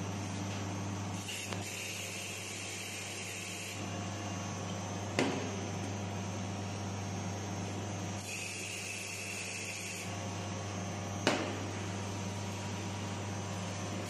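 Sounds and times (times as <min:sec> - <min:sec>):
steady machine hum: 0:00.0 - 0:14.0.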